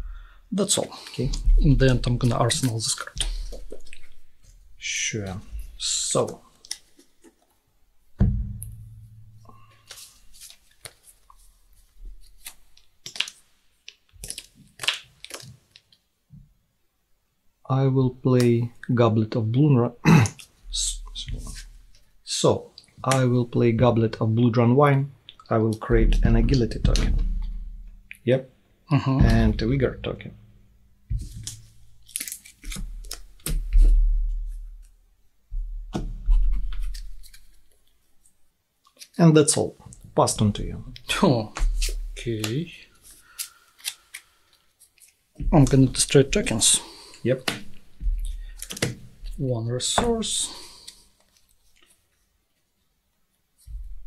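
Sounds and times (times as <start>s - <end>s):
low thump on table: 8.2s - 9.1s
cards sliding and tapping: 31.1s - 34.0s, 41.6s - 52.0s.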